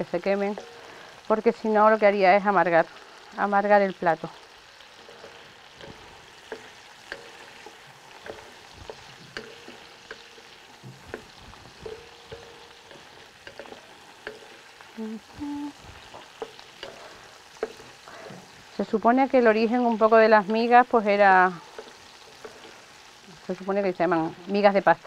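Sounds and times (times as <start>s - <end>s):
food sizzling in oil: 0.0s - 25.0s
spoon scraping a pan: 4.4s - 23.6s.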